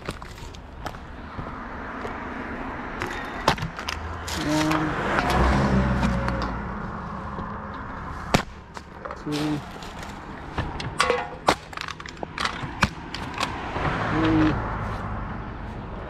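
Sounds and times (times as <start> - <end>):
car passing by: 3.9 - 8.3, 13.4 - 16.0.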